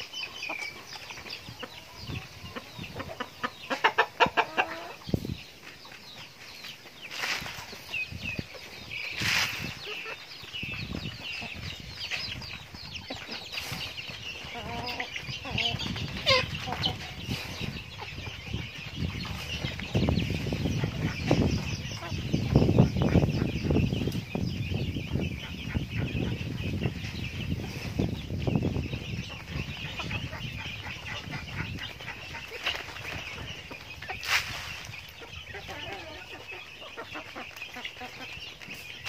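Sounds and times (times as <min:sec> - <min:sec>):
chicks peeping: 0:00.0 - 0:39.0
hens clucking: 0:00.0 - 0:39.0.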